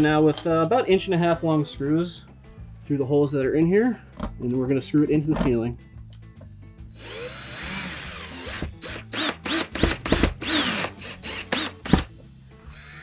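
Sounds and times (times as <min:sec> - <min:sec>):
cordless drill driving a screw: 0:07.0 - 0:12.1, 0:12.7 - 0:13.0
drill clicking: 0:07.0 - 0:12.1.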